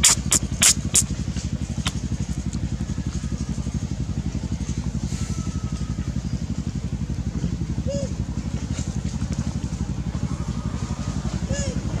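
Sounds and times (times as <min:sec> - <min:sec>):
small engine idling: 0:00.0 - 0:12.0.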